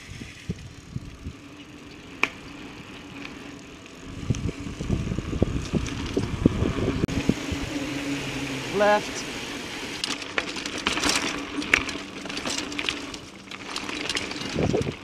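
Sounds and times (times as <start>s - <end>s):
bike tyre noise on pavement: 0.0s - 15.0s
knocks and rattles from handlebars: 9.9s - 15.0s.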